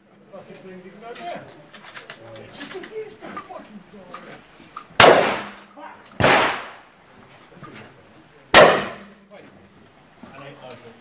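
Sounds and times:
shotgun shots: 0:05.0 - 0:05.6, 0:06.2 - 0:06.9, 0:08.5 - 0:09.1.

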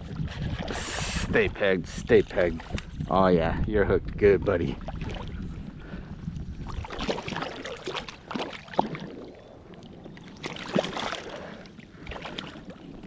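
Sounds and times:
fish thrashing and splashing water: 0:04.8 - 0:05.5, 0:06.4 - 0:09.5, 0:10.3 - 0:13.0.

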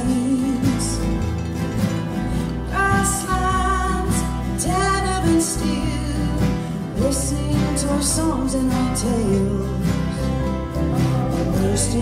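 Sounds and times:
acoustic guitars strumming: 0:00.0 - 0:12.0
bass: 0:00.0 - 0:12.0
mandolin: 0:00.0 - 0:12.0
person singing long notes: 0:02.7 - 0:12.0.

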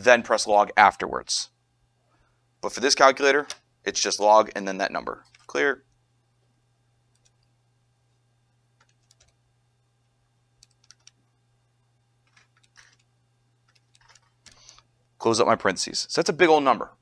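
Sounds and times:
calculator keys clicking: 0:08.8 - 0:09.3, 0:10.6 - 0:11.2, 0:12.3 - 0:13.0, 0:13.7 - 0:14.8.

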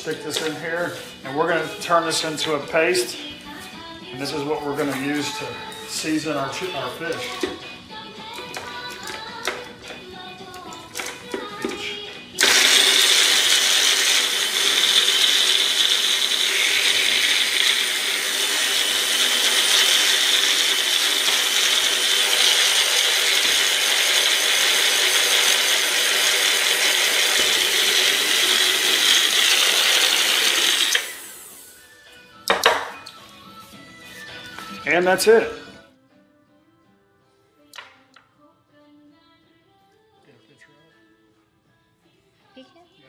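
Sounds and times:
blender cup clattering: 0:12.4 - 0:31.3
blender running: 0:12.4 - 0:31.8.

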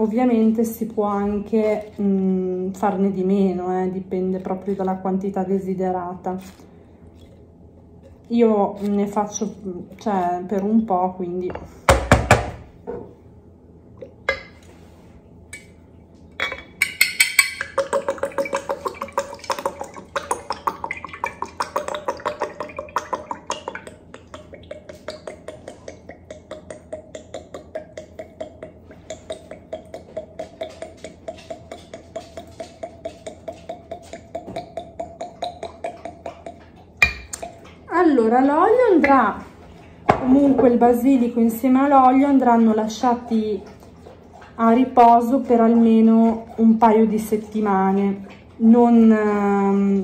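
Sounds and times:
oil glugging out of a bottle: 0:17.6 - 0:37.9.

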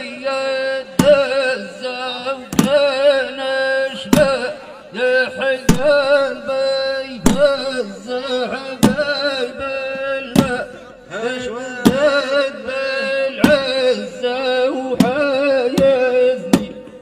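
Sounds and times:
man chanting: 0:00.0 - 0:17.0
sharp beat: 0:10.3 - 0:10.7, 0:11.8 - 0:12.6, 0:13.4 - 0:14.0.

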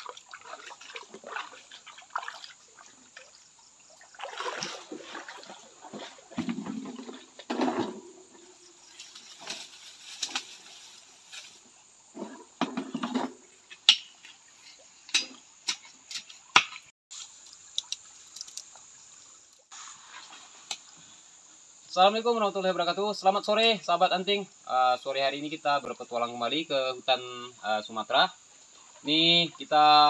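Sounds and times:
pan and shovel set down: 0:05.9 - 0:08.2, 0:12.1 - 0:14.1.

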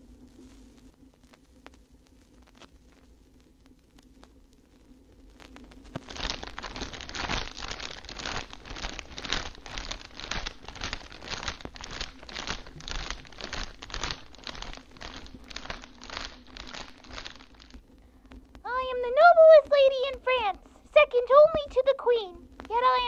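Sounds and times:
faint steady hum: 0:00.0 - 0:23.0
loud crackling crinkling noise: 0:00.0 - 0:23.0.

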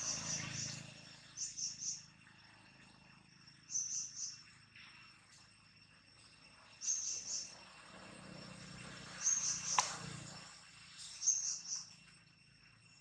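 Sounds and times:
high insect chirping call: 0:00.0 - 0:13.0
insect drone: 0:00.0 - 0:13.0
sharp click: 0:09.7 - 0:10.0.

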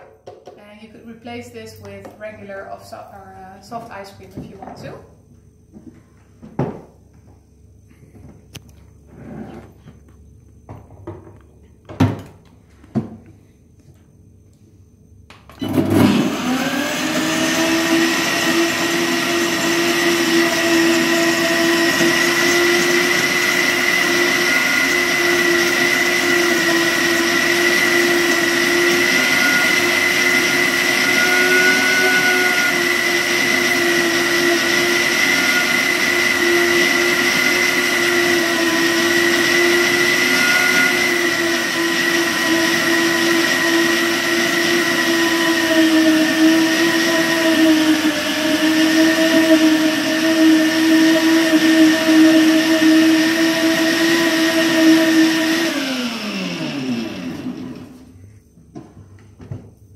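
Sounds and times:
blender running at high speed: 0:15.6 - 0:58.0.

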